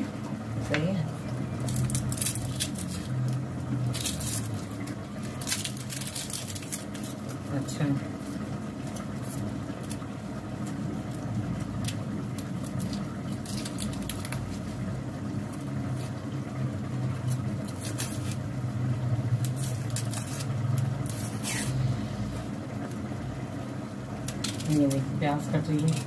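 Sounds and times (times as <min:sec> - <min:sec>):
steady low hum: 0:00.0 - 0:26.0
knife cutting onion: 0:19.3 - 0:22.0.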